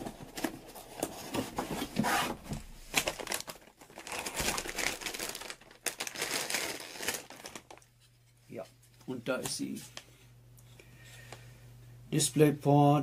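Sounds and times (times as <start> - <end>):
plastic bag crinkling: 2.9 - 8.0.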